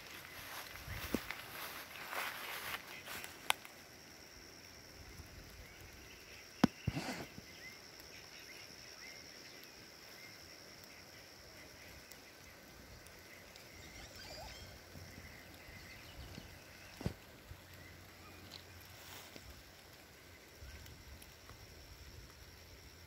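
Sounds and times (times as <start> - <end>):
distant bird chirps: 5.1 - 19.2.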